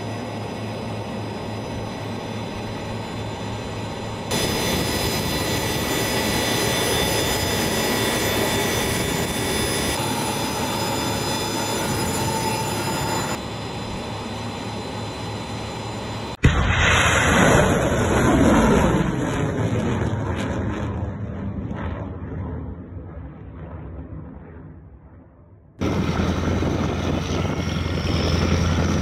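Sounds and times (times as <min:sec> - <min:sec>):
high whining tones: 0:00.0 - 0:16.4.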